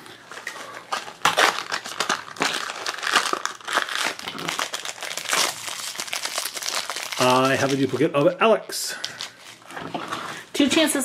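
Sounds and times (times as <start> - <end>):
wrapper crinkling: 0.2 - 10.5.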